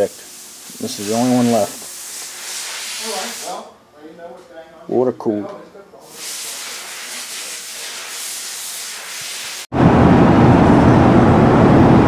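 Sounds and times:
steady hiss: 0.0 - 3.7, 6.0 - 9.7.

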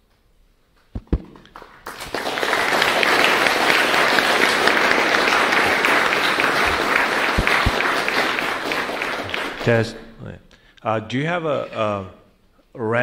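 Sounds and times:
low thumps: 1.0 - 1.6, 7.4 - 7.8
audience applauding: 1.0 - 10.0.

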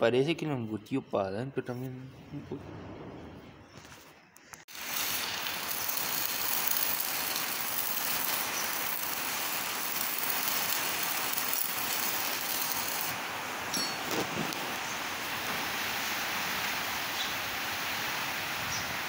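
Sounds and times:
arc welding crackling hiss: 4.6 - 19.0.

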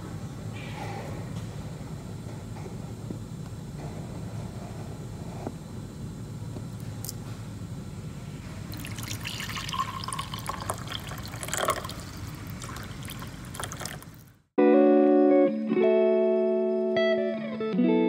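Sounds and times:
low steady hum: 0.0 - 14.6
coffee pouring into mug: 8.7 - 14.3.

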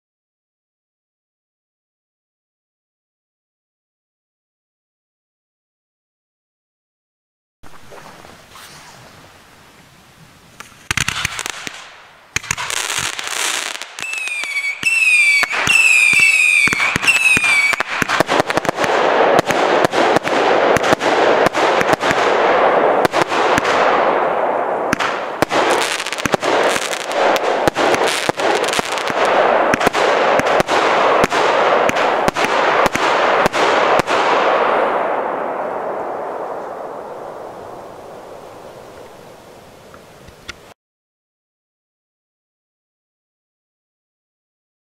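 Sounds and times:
firework fuse hiss: 8.4 - 9.4
crackling firework bangs: 10.6 - 39.2
whistling firework shots: 10.6 - 39.2.

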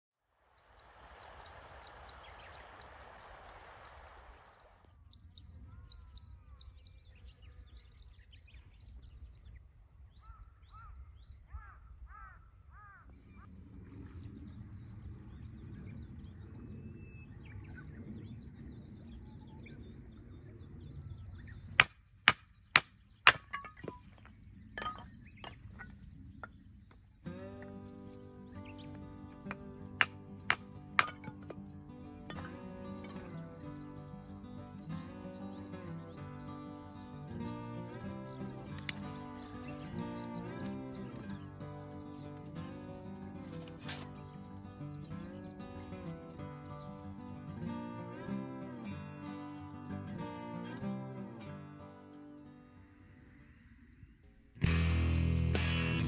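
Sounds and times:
birds chirping: 0.4 - 54.9
wind rumbling on microphone: 0.6 - 21.8
firewood being split: 21.8 - 25.9, 30.0 - 31.6.

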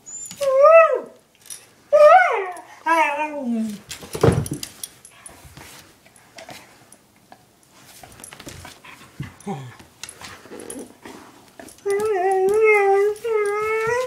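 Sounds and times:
dog whining: 2.0 - 3.8, 11.6 - 14.0.

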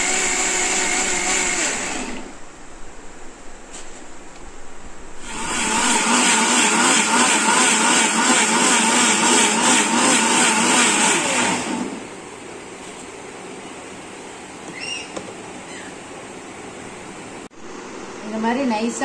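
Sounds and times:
mixer grinder running: 0.0 - 2.4, 5.2 - 12.2.

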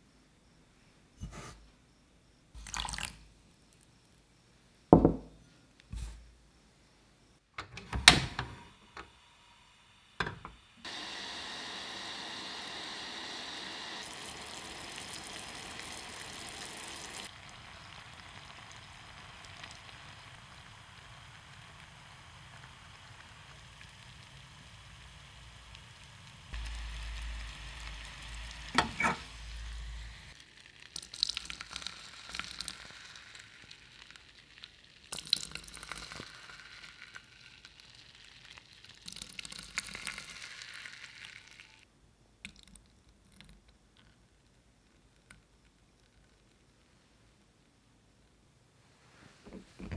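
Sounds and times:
hot caramel sizzling in cups: 2.6 - 3.8, 8.8 - 41.9
caramel bubbling in a saucepan: 10.2 - 41.9.

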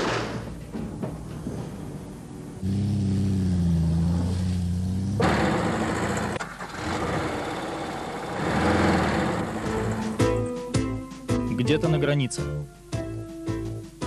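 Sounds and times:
vehicle engine running: 4.5 - 10.2.

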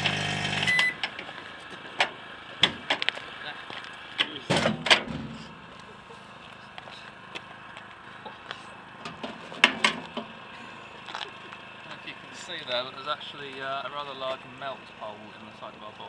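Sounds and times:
footsteps on gravel: 1.2 - 4.2, 5.6 - 8.8.

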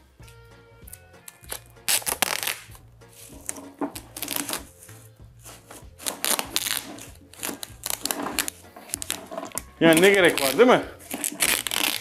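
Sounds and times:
plastic bag crinkling: 5.6 - 12.0.

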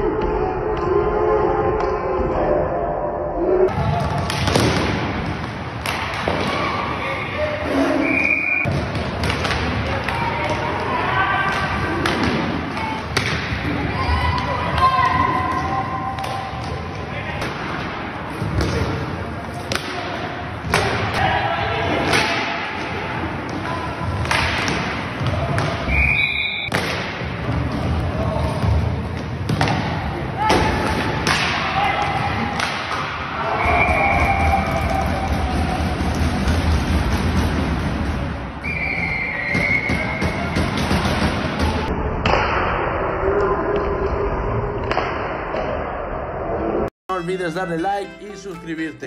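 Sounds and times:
players' voices: 0.0 - 41.9, 47.1 - 49.0
short high whistle: 8.0 - 8.7, 25.9 - 26.7.

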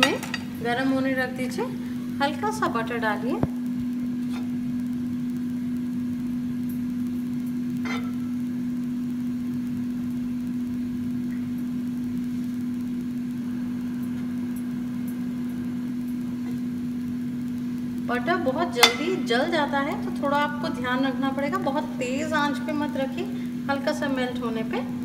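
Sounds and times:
steady low hum: 0.0 - 25.0
spoon clicking on pan: 18.8 - 19.3.

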